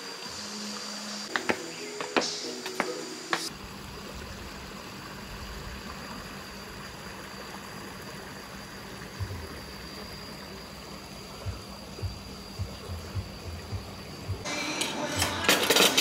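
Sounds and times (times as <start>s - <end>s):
stream running over stones: 0.0s - 14.5s
soft low thumps: 9.1s - 10.1s, 10.9s - 14.5s.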